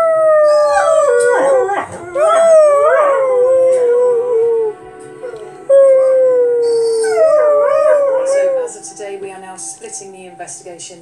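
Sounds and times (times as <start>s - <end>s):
dog howling: 0.0s - 8.8s.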